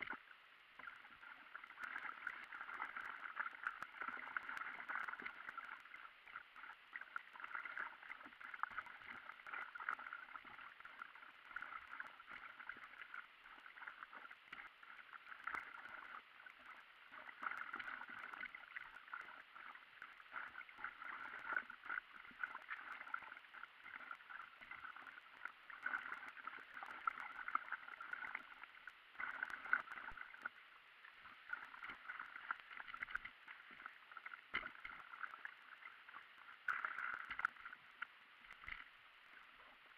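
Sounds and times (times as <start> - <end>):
water splashing against paddleboard: 17.1 - 30.6, 31.4 - 37.8, 38.5 - 38.9.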